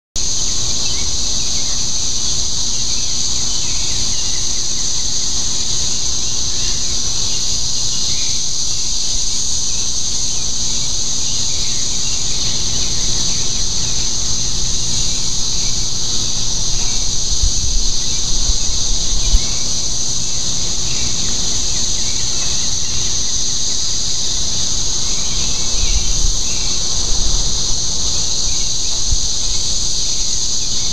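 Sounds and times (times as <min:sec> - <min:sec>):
cicadas droning: 0:00.2 - 0:30.9
low microphone rumbles: 0:10.6 - 0:30.6.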